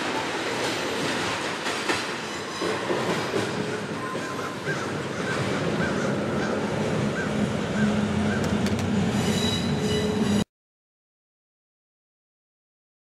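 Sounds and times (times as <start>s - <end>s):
train wheels rolling on rails: 0.0s - 10.4s
wheel squeal: 9.1s - 10.4s.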